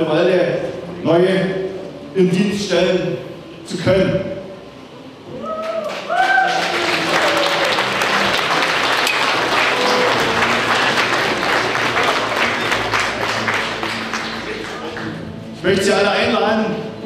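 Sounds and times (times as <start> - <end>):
audience applauding: 5.6 - 15.3.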